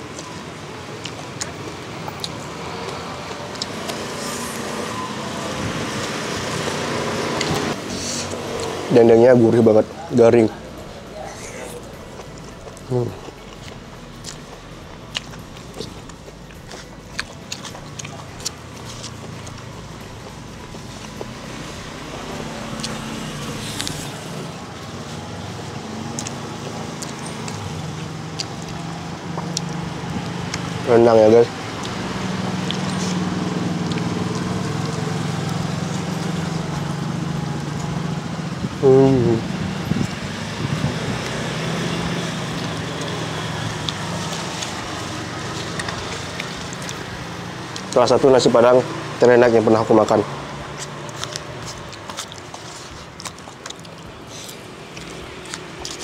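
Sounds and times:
road traffic: 0.0s - 56.0s
vehicle engine humming: 0.0s - 56.0s.

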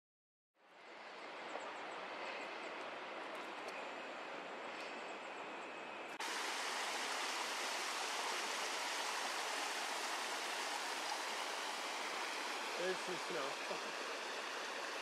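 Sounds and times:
soft steady hiss: 6.2s - 15.0s
stream cascading over boulders: 6.2s - 15.0s.

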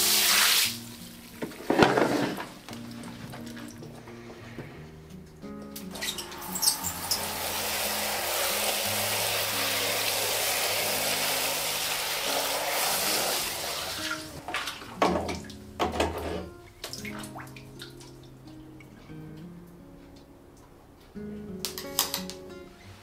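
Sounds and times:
water splashing and sloshing: 0.0s - 4.1s, 5.7s - 19.0s
water pouring into plastic bucket: 6.2s - 15.4s.

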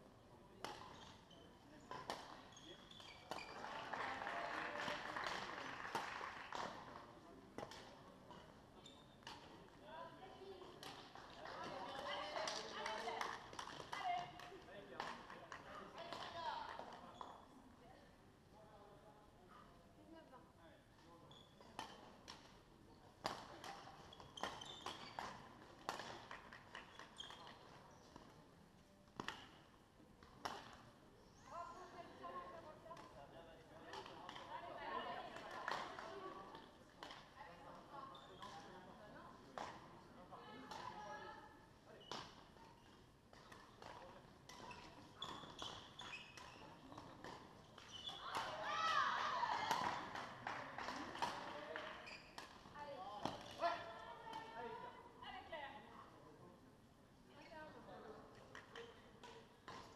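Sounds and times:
rackets hitting shuttlecocks: 23.2s - 27.5s, 49.6s - 51.6s.

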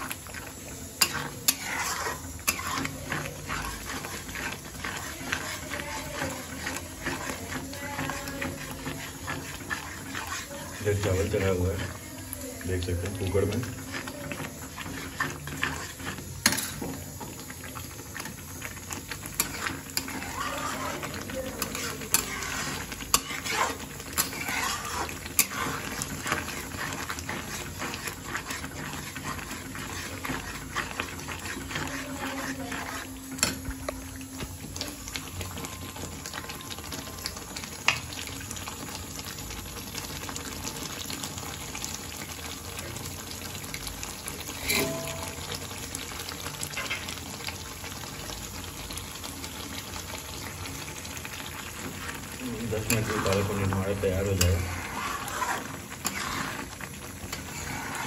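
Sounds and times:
spatula stirring: 0.0s - 58.0s
puree bubbling: 13.4s - 36.4s, 50.4s - 58.0s.

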